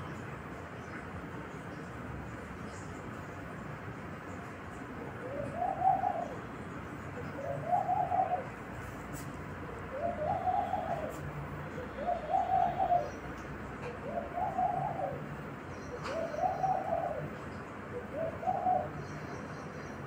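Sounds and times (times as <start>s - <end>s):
small birds chirping: 0.0s - 20.0s
dove cooing: 5.1s - 9.0s, 9.7s - 19.3s.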